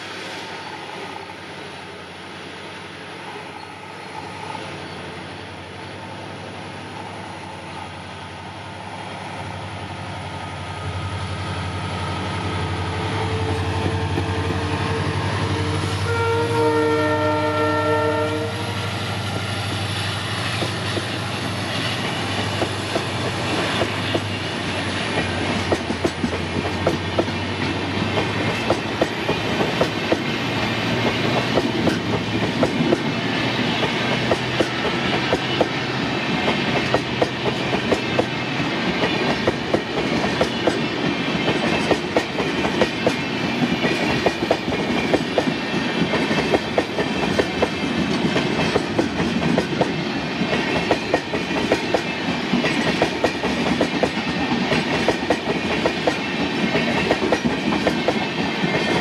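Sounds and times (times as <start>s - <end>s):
train wheels clattering over joints: 20.5s - 59.0s.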